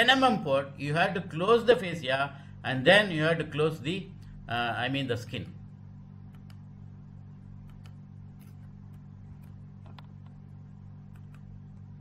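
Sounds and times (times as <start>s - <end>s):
low electrical hum: 0.0s - 12.0s
faint irregular clicks: 6.3s - 6.7s, 7.6s - 10.4s, 11.0s - 11.9s.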